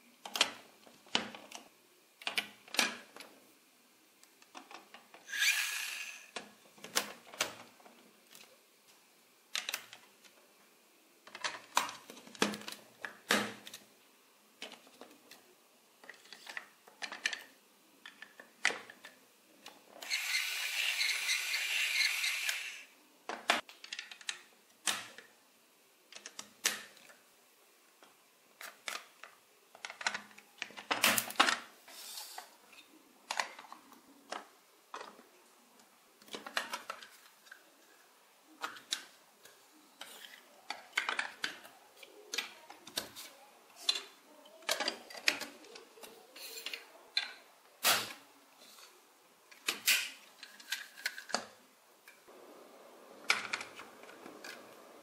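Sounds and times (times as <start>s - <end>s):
plastic parts rattling scrape: 4.6s - 6.4s, 20.0s - 22.8s, 49.6s - 51.5s
plastic bricks clicking: 9.5s - 10.0s, 11.2s - 13.9s, 16.0s - 25.3s, 28.6s - 31.7s, 36.2s - 37.6s, 38.6s - 43.2s, 49.5s - 52.2s, 53.2s - 55.0s.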